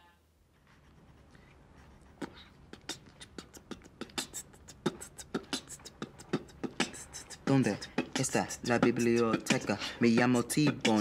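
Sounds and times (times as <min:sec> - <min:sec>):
beatboxing drum sounds: 0:02.2 - 0:11.0.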